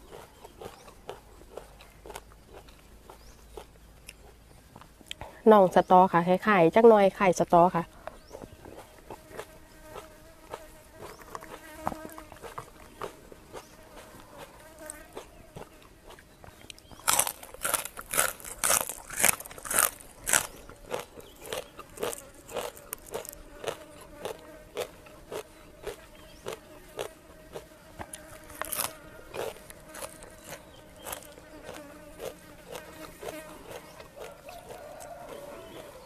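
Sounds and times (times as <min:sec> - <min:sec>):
crunching and chewing vegetables: 0:00.0 - 0:06.0, 0:07.5 - 0:36.0
fly buzzing: 0:07.9 - 0:15.4, 0:19.3 - 0:36.0.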